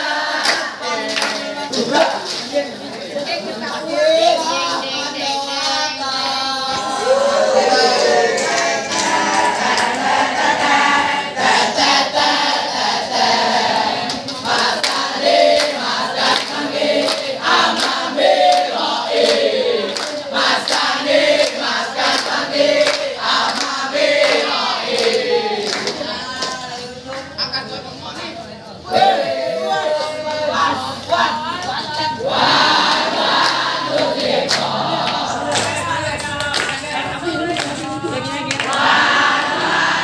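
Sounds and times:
crowd of boys chanting and singing: 0:00.0 - 0:40.0
hand claps: 0:00.4 - 0:02.6, 0:08.3 - 0:10.4, 0:14.0 - 0:27.3, 0:32.8 - 0:39.6.

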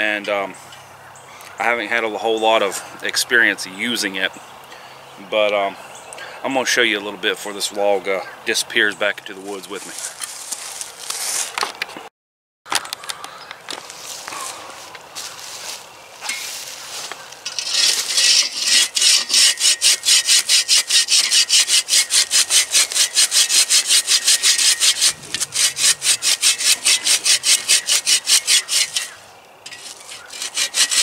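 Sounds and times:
hand saw cutting log: 0:17.4 - 0:31.0.

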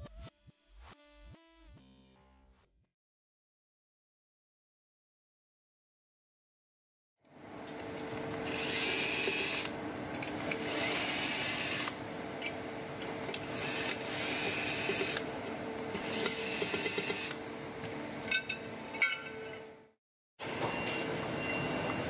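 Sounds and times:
cordless drill driving screws: 0:08.5 - 0:09.7, 0:10.7 - 0:12.0, 0:13.5 - 0:15.2, 0:16.0 - 0:17.4.

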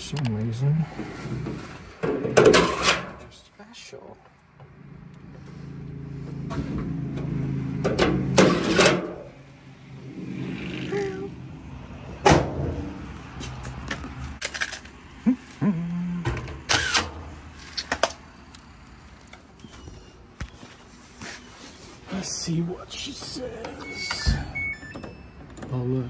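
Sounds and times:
clicks and knocks of metal panels: 0:01.4 - 0:03.3, 0:07.8 - 0:09.3.

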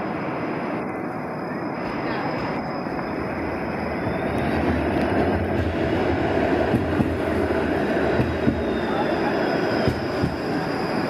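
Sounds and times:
streetcar wheels rumbling on rails: 0:00.0 - 0:11.0.

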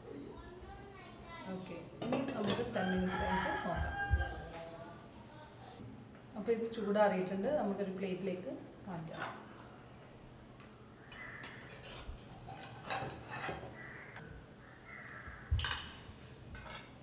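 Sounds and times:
metal spatula scraping frying pan: 0:11.5 - 0:13.8.

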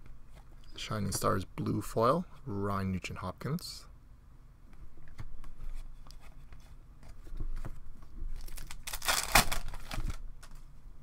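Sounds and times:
foil wrapper crinkling and tearing: 0:08.4 - 0:10.6.

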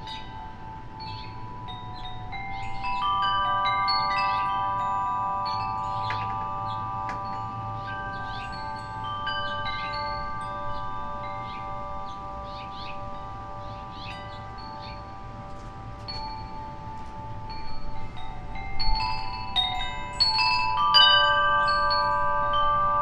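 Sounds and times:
wind chime ringing: 0:00.0 - 0:23.0.

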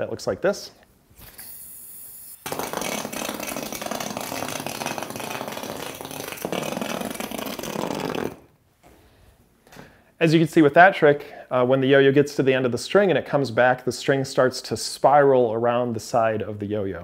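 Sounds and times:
yoyo whirring: 0:01.2 - 0:08.4
yoyo rattling on floor: 0:02.4 - 0:08.4.

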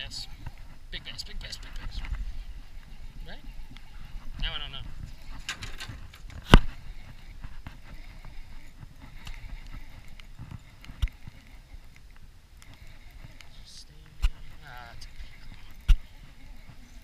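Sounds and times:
wind buffeting microphone: 0:00.0 - 0:17.0
fishing reel handling ticks: 0:05.1 - 0:17.0.

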